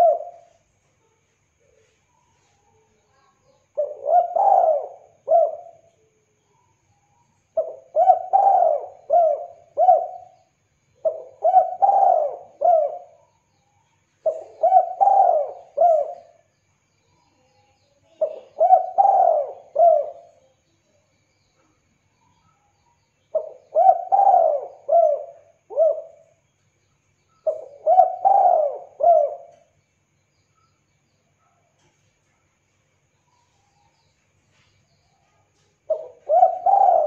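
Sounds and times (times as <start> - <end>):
dove cooing: 0.0 - 0.6, 3.7 - 5.9, 7.6 - 10.4, 11.0 - 13.2, 14.2 - 16.4, 18.2 - 20.4, 23.3 - 26.3, 27.4 - 29.7, 35.9 - 37.0.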